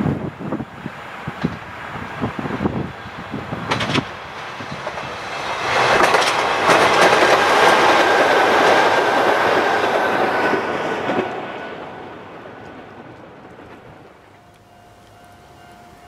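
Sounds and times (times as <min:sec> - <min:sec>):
train high whine: 0:00.0 - 0:16.0
train wheels clattering over rail joints: 0:01.3 - 0:11.6.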